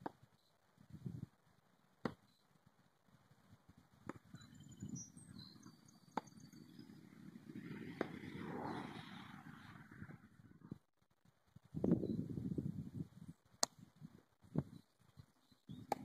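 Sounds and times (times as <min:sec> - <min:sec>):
low rushing noise: 0:06.4 - 0:10.8.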